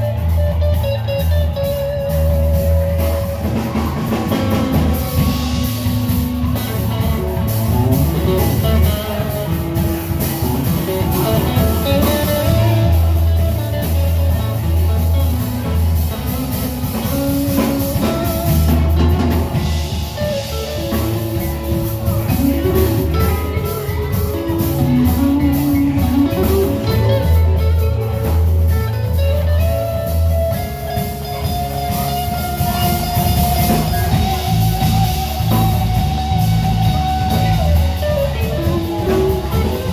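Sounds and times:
drum kit: 0.0s - 39.9s
electric bass: 0.0s - 39.9s
electric guitar: 0.0s - 39.9s.

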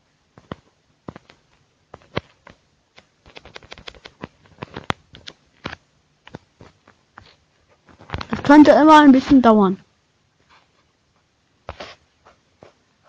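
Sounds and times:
phone being handled: 0.4s - 8.4s.

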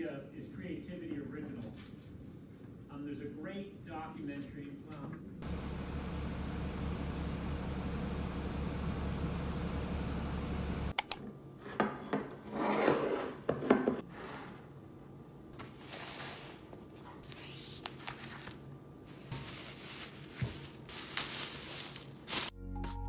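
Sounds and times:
bus low rumble: 5.4s - 11.0s
plastic bags rustling: 17.2s - 22.6s.

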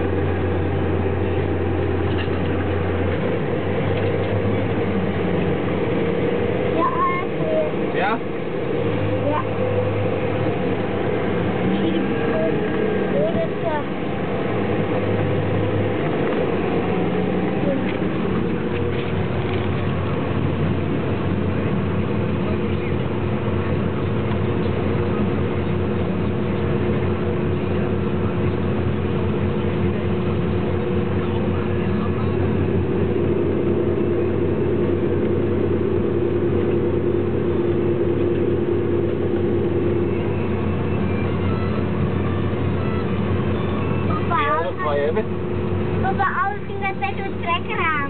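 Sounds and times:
harvester engine drone: 0.0s - 48.0s.

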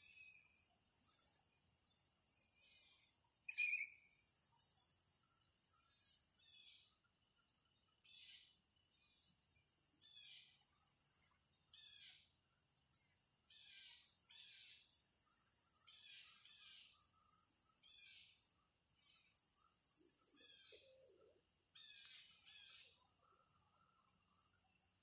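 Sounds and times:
insects droning: 0.0s - 25.0s
bird calling: 3.5s - 4.0s.

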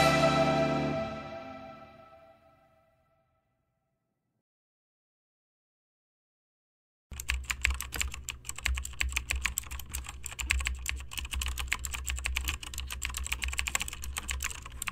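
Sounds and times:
typing on computer keyboard: 7.1s - 14.9s.

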